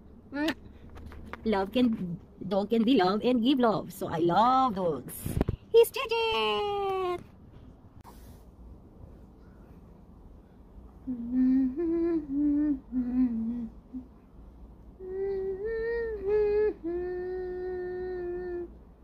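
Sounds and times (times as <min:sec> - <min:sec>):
woman humming: 0:11.0 - 0:14.2, 0:15.0 - 0:18.8.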